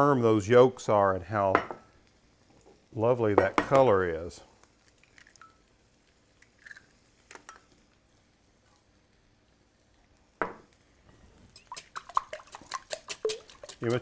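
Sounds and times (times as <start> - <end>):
eggshell cracking: 4.6 - 7.7, 11.5 - 14.0
whisk clinking against glass bowl: 11.6 - 14.0.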